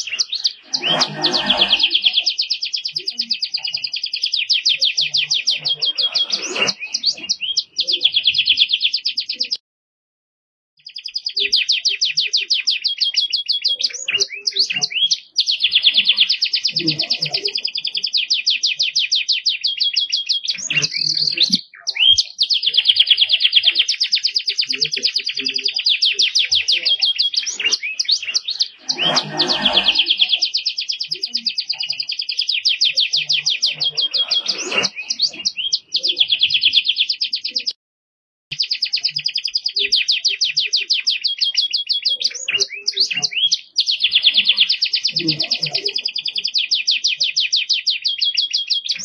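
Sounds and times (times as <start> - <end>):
canary singing trills: 0.0 - 9.6, 10.8 - 37.8, 38.5 - 49.0.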